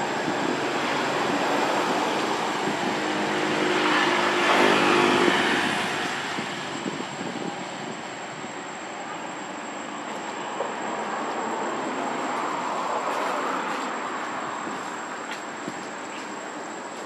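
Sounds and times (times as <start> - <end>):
passing vehicle engine hum: 0.0 - 8.5.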